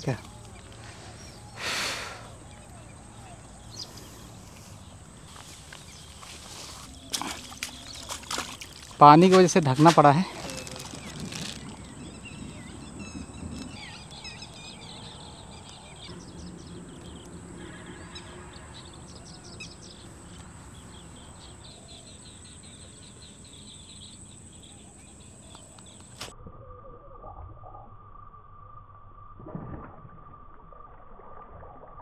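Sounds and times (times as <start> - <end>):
light rain hiss: 0.0 - 7.0
birds chirping: 0.0 - 26.3.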